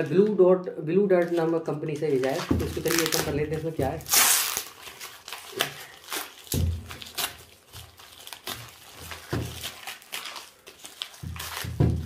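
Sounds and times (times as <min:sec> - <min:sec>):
plastic bag crinkling: 0:01.0 - 0:12.0
plastic bag ripping: 0:01.2 - 0:12.0.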